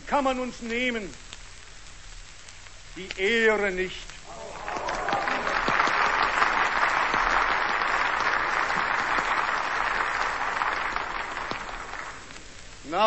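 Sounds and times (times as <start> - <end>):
audience applauding: 4.3 - 12.7.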